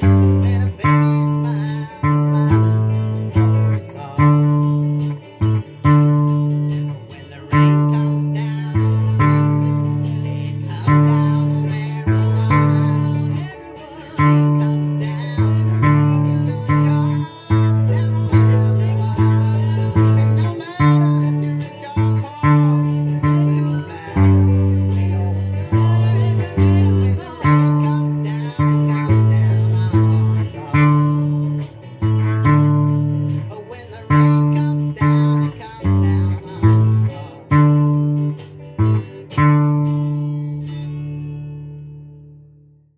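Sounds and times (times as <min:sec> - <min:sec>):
ukulele plucked low notes: 0:00.0 - 0:42.8.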